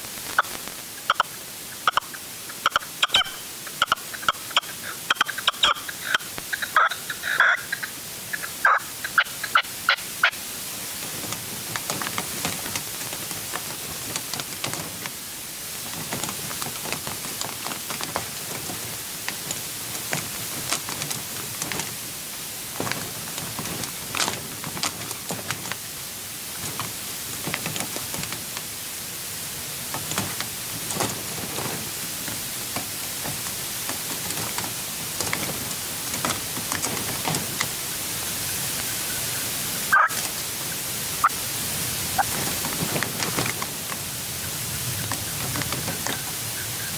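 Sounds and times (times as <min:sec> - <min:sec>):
steady hiss: 0:00.0 - 0:46.9
partridge calling: 0:00.3 - 0:10.4, 0:37.8 - 0:40.5, 0:42.1 - 0:42.3, 0:44.2 - 0:46.9.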